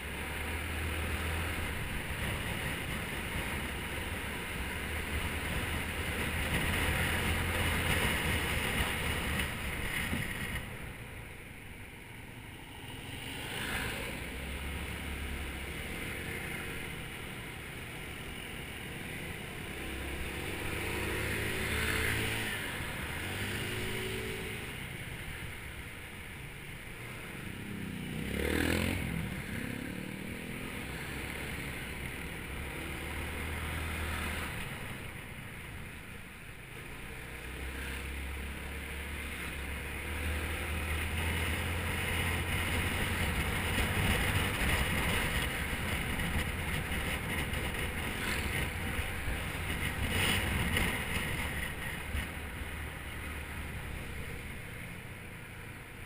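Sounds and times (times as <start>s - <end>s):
passing scooter engine: 12.3s - 56.0s.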